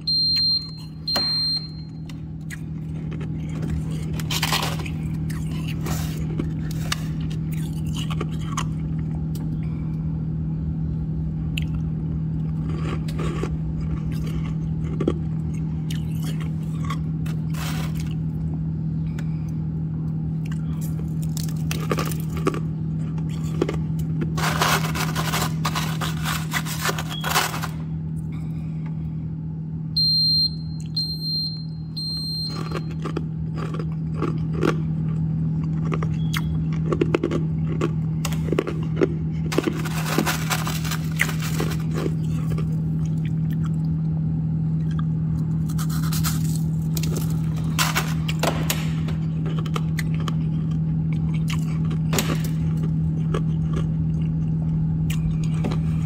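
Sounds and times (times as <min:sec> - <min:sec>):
low hum: 0:00.0 - 0:56.0
ice crunching and scraping: 0:03.1 - 0:08.0, 0:17.3 - 0:18.2, 0:23.4 - 0:27.9, 0:38.5 - 0:42.8, 0:45.7 - 0:48.4.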